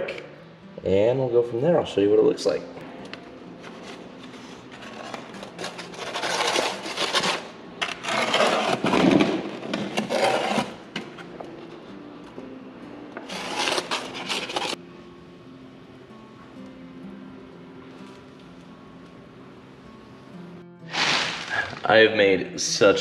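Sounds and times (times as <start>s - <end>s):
trowel scraping mortar in bucket: 4.7s - 10.8s, 13.3s - 14.8s, 20.9s - 21.9s
rustling: 20.9s - 21.9s.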